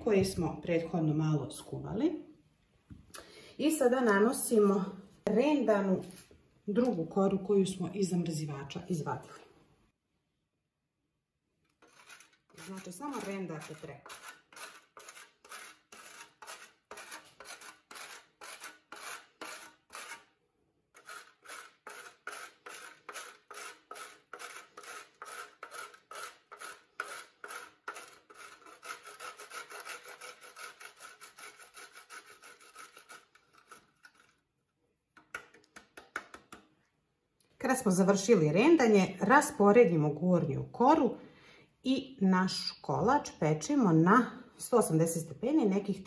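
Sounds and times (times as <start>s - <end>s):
dough rasping on a metal grater: 11.8s - 20.3s, 21.0s - 34.4s.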